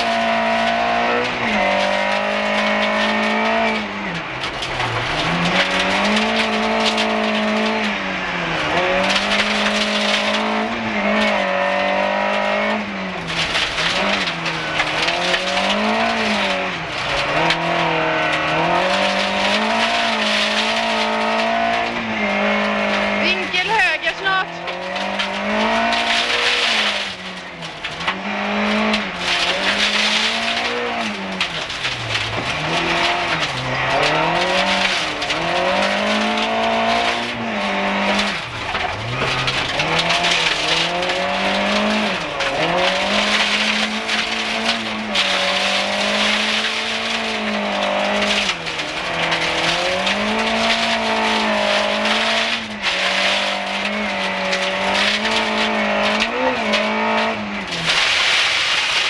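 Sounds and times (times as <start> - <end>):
rally car engine at high revs: 0.0 - 59.0
gravel hiss under tyres: 25.1 - 59.0.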